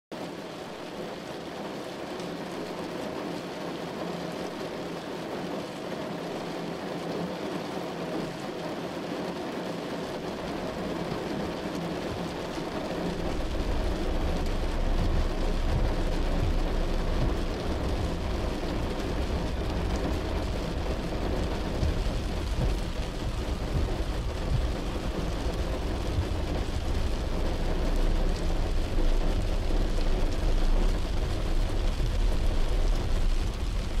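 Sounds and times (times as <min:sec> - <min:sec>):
heavy rain drumming on car roof: 0:00.1 - 0:34.0
low rumble: 0:12.1 - 0:34.0.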